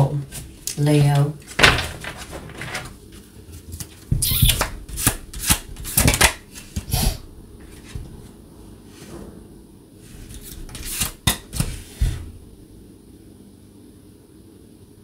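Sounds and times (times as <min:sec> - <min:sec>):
cards being shuffled by hand: 0:00.3 - 0:07.0, 0:10.2 - 0:12.3.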